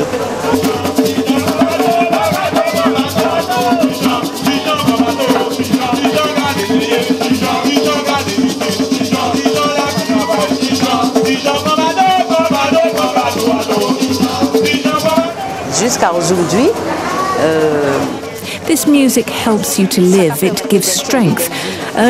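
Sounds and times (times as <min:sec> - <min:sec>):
calabash shaker rattling: 0:00.0 - 0:16.6
hand drums beating: 0:00.0 - 0:22.0
voices singing: 0:00.0 - 0:22.0.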